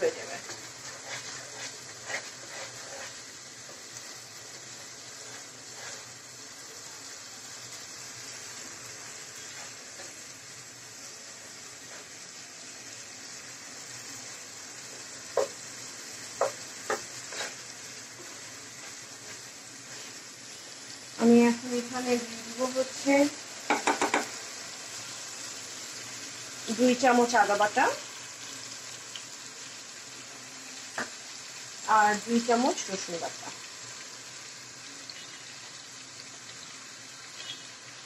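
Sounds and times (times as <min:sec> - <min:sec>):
meat sizzling in oil: 0:00.0 - 0:38.0
spatula knocking against pot: 0:23.7 - 0:24.3.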